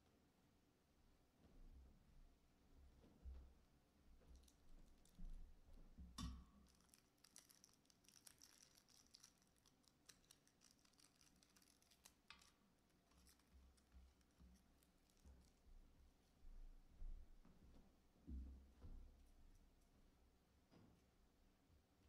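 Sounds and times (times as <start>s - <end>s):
small clicks and rustles: 2.9s - 21.2s.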